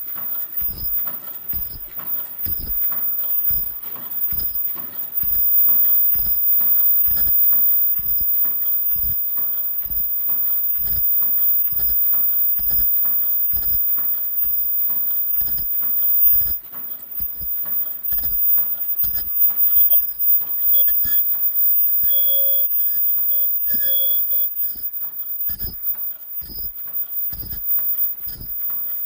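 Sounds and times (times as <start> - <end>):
machine mechanical clacking: 0.0 - 29.0
brief high-pitched tones: 19.1 - 24.8.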